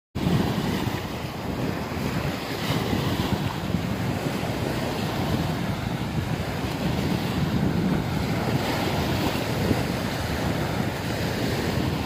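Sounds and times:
waves washing on sandy shore: 0.2s - 12.0s
wind buffeting microphone: 0.2s - 12.0s.

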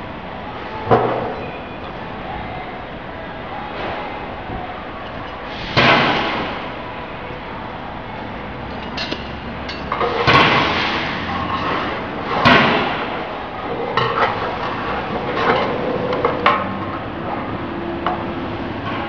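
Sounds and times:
metal tools knocking on steel frame: 8.7s - 10.2s.

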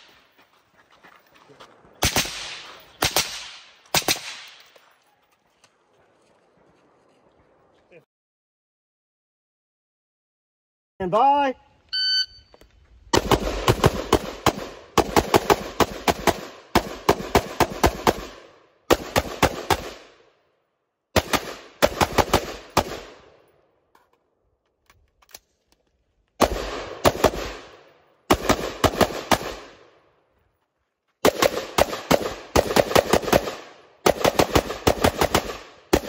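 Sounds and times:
rifle firing rapid shots: 2.0s - 4.6s, 13.1s - 20.2s, 21.2s - 23.3s, 26.4s - 29.9s, 31.2s - 36.0s.

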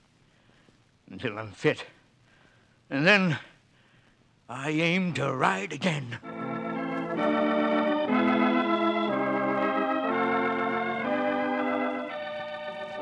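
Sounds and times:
organ chords: 4.6s - 13.0s.

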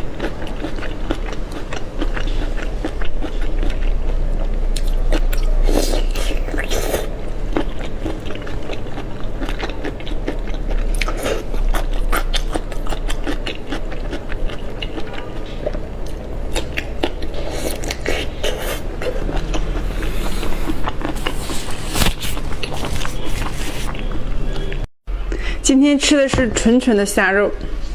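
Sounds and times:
person chewing wetly: 0.0s - 24.8s
plastic glove rustle: 21.1s - 24.0s.

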